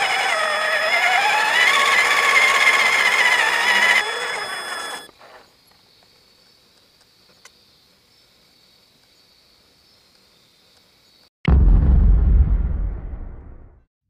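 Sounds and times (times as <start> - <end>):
toy truck motor whining: 0.0 - 5.1.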